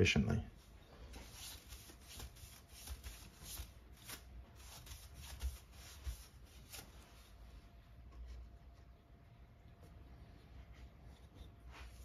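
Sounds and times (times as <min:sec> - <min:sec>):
soft paintbrush strokes: 0:00.5 - 0:12.0
hands rustling on paper: 0:00.8 - 0:09.0.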